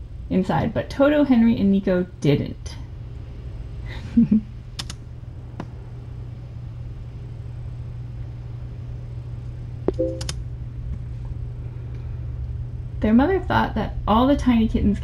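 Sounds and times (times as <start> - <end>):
steady low hum: 0.0 - 15.0
faint short clicks: 4.8 - 5.0.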